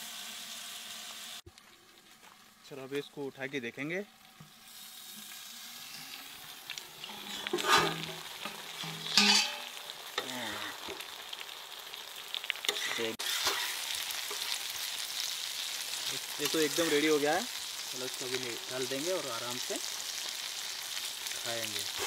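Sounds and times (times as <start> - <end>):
fish sizzling in hot oil: 0.0 - 3.4, 4.1 - 22.0
metal spatula scraping: 6.9 - 11.0, 12.6 - 14.6.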